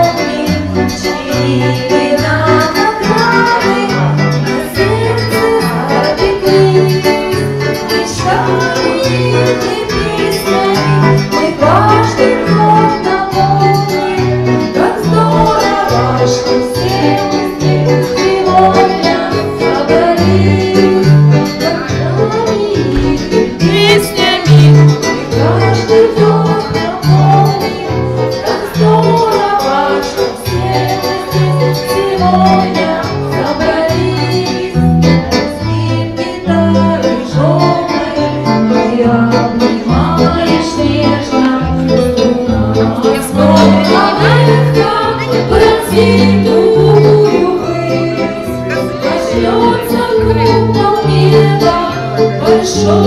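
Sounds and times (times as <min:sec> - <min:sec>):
karaoke backing track with bass: 0:00.0 - 0:53.0
person singing into a microphone: 0:00.0 - 0:53.0.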